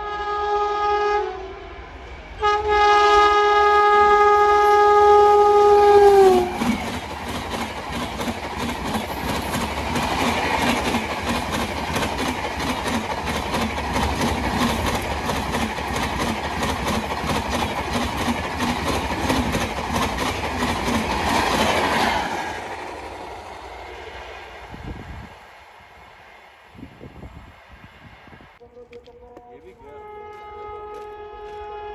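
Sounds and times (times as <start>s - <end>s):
train wheels clickety-clack: 5.9s - 24.3s.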